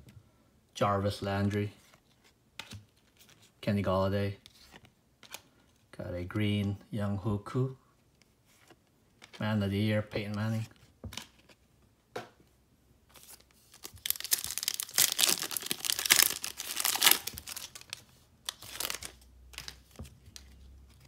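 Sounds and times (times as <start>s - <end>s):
foil wrapper tearing and crinkling: 13.8s - 19.2s.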